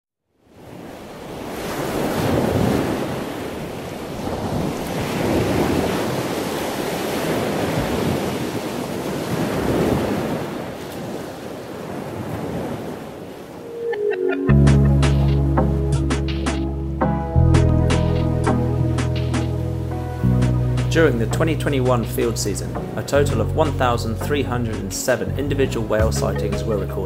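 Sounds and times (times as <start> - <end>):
ocean surf washing: 0.4 - 27.0
music with bass and plucked notes: 13.9 - 27.0.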